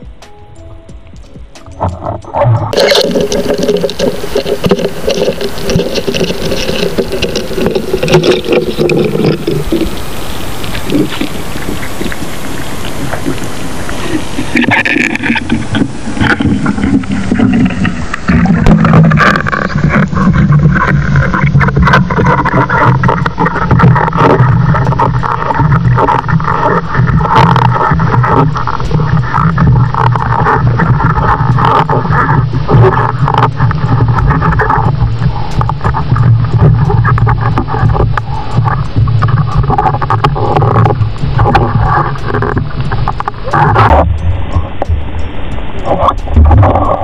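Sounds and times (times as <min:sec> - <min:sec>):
muffled underwater wash: 0:00.0 - 0:47.0
steady low drone: 0:13.4 - 0:47.0.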